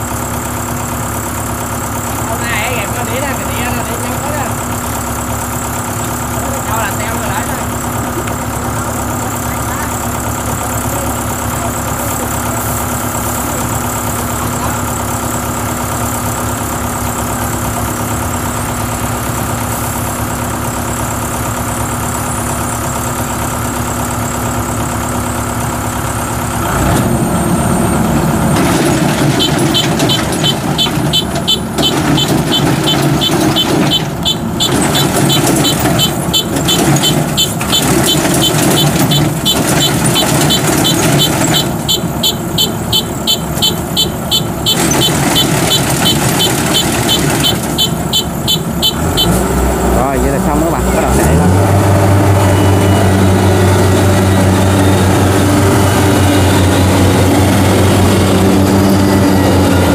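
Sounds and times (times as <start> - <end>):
cart engine running: 0.0 - 59.9
combine harvesters running: 0.0 - 59.9
high-pitched beeping: 29.2 - 51.3.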